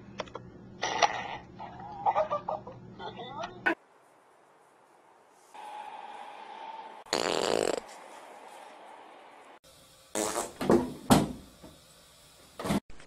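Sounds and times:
fart sounds: 0:00.8 - 0:01.5, 0:07.1 - 0:07.9, 0:10.1 - 0:10.8.

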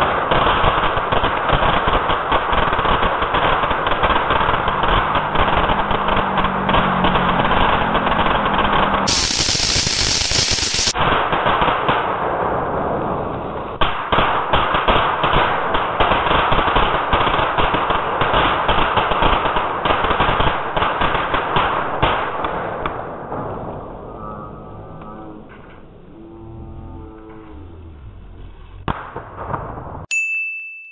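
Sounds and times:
firework crackling and popping: 0:00.0 - 0:23.6, 0:28.9 - 0:29.9
firework hissing burst: 0:09.0 - 0:11.2.

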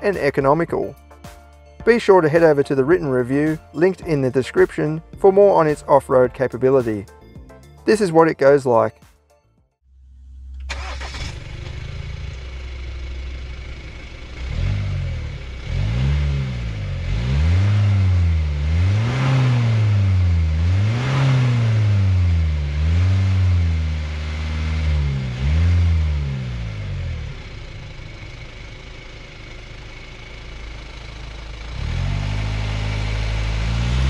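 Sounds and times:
diesel engine idling and revving: 0:10.0 - 0:34.0.

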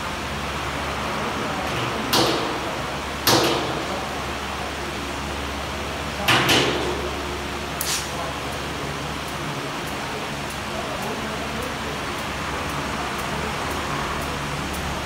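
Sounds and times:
steady hiss: 0:07.3 - 0:15.0.

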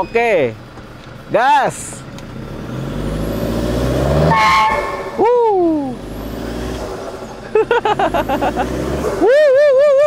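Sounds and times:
diesel engine revving: 0:00.6 - 0:10.0
short voice exclamation: 0:05.2 - 0:06.0.

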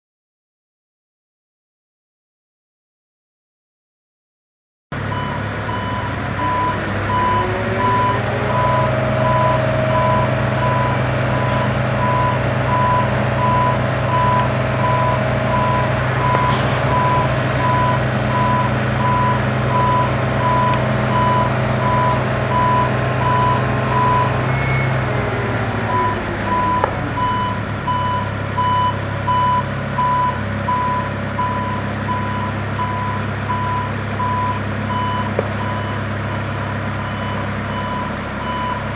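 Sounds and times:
engine and hydraulics whining: 0:05.0 - 0:38.9
motion warning alarm beeping: 0:05.1 - 0:25.0, 0:25.9 - 0:36.0.

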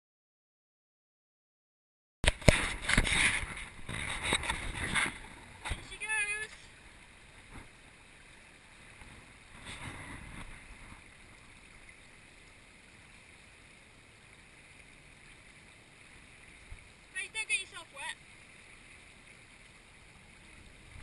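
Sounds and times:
faint river hiss: 0:02.3 - 0:21.0.

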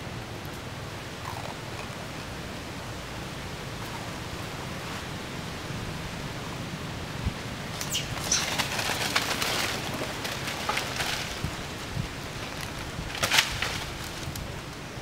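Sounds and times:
outdoor hiss: 0:00.0 - 0:15.0
monkey squeaks: 0:07.8 - 0:08.6
monkeys scuffling in dry leaves: 0:07.8 - 0:14.3.

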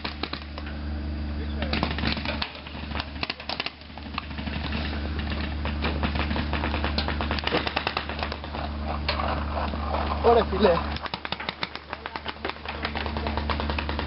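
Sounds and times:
paintball markers firing: 0:00.0 - 0:00.7, 0:01.7 - 0:08.6, 0:10.9 - 0:14.0
steady low hum: 0:00.0 - 0:14.0.

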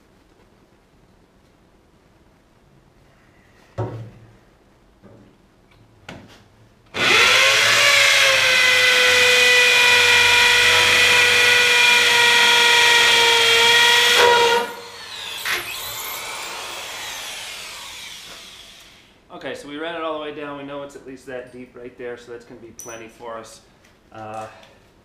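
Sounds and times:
hammer drill boring into concrete: 0:07.0 - 0:19.1.

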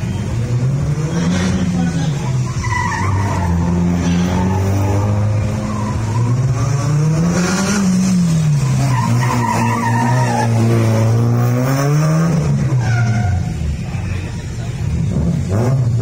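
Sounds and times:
tyres squealing: 0:01.1 - 0:06.8, 0:08.4 - 0:11.0
car engine revving hard: 0:03.2 - 0:12.8, 0:15.0 - 0:16.0.

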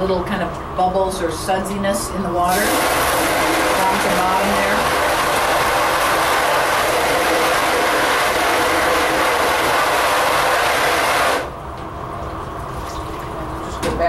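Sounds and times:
hose nozzle spraying water: 0:02.5 - 0:11.5.

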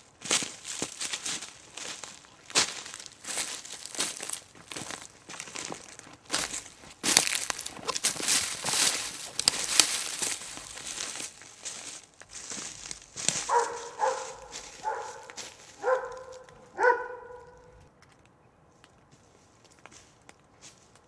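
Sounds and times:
footsteps crunching on trail: 0:00.0 - 0:17.9, 0:18.7 - 0:21.0
animal barking: 0:13.3 - 0:17.8.

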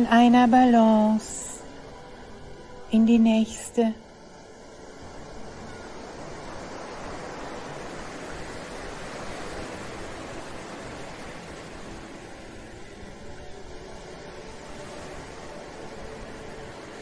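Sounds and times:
ocean wave washing in: 0:03.6 - 0:17.0.

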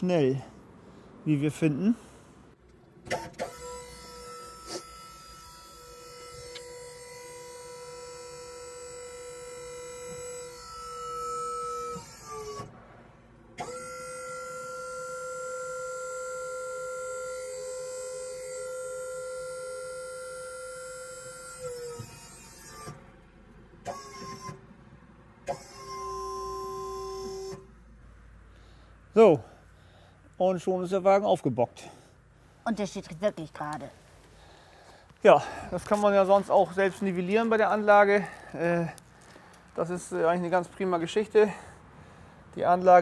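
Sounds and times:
hydraulic pump whining: 0:02.5 - 0:12.8, 0:13.5 - 0:27.8.

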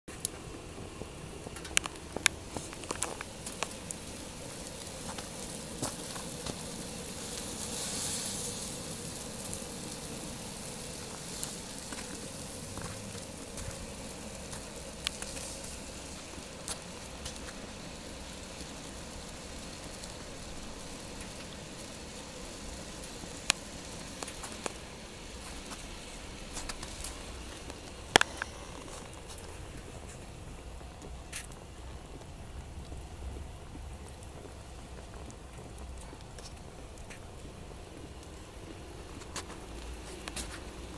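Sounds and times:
sap boiling hiss: 0:00.1 - 0:40.9
wood fire crackling and popping: 0:00.1 - 0:40.9.

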